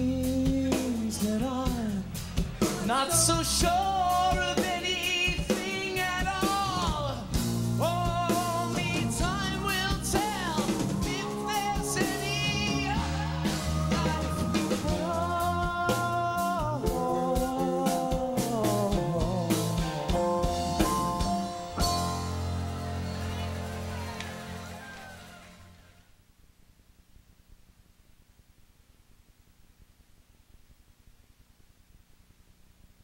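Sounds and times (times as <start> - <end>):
person singing with vibrato: 0.0 - 23.1
rock band playing: 0.0 - 26.0.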